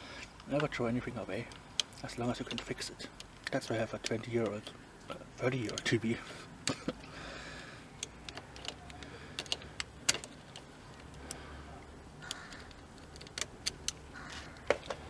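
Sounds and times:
pliers clicking on metal: 0:12.2 - 0:14.5.

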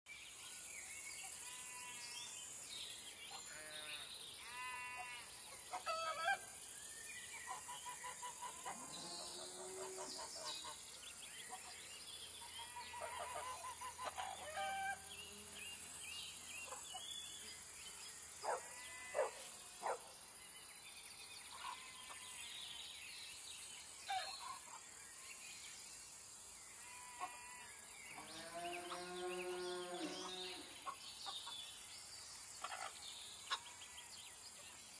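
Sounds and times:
farm animal calls: 0:12.6 - 0:15.5, 0:18.4 - 0:20.0
steady high hiss: 0:15.0 - 0:28.3.

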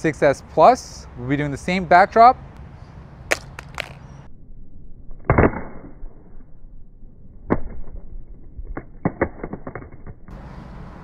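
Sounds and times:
phone clattering on stone: 0:03.3 - 0:04.0.

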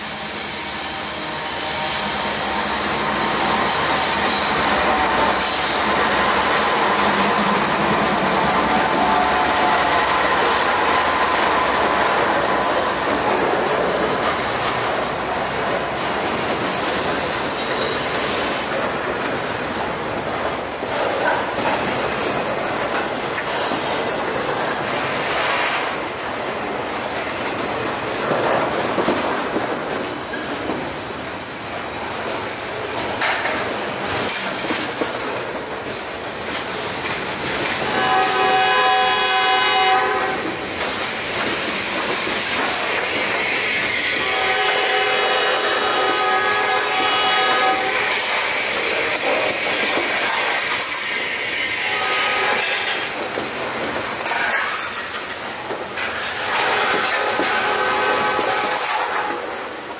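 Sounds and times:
train horn: 0:00.0 - 0:07.0, 0:07.6 - 0:13.0, 0:37.8 - 0:40.6, 0:43.3 - 0:49.0, 0:50.3 - 0:53.1, 0:56.2 - 0:59.8
freight train wheels clattering: 0:00.0 - 0:59.9.

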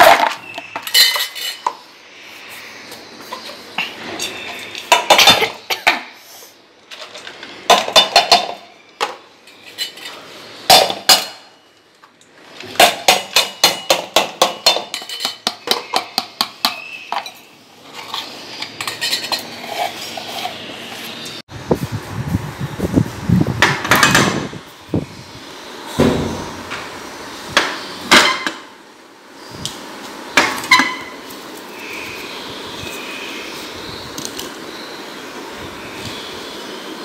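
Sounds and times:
spoon scraping steel bowl: 0:14.6 - 0:16.0, 0:16.8 - 0:21.4.

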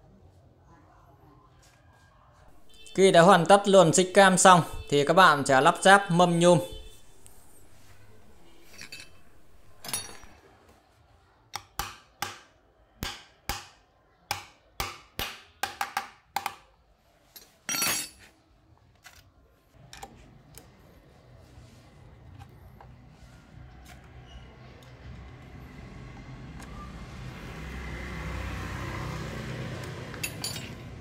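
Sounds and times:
metallic clatter: 0:07.9 - 0:10.4.

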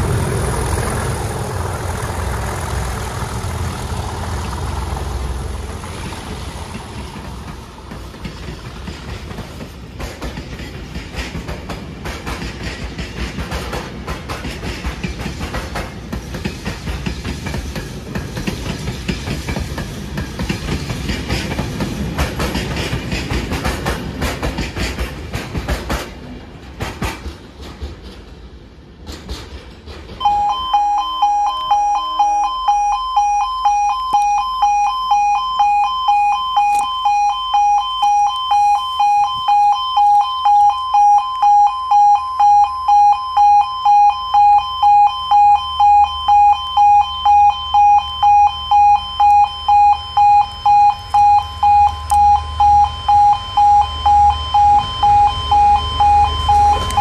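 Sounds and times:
train wheels clattering over rails: 0:00.0 - 0:30.3, 0:52.8 - 0:57.0
level crossing warning alarm: 0:30.2 - 0:57.0.

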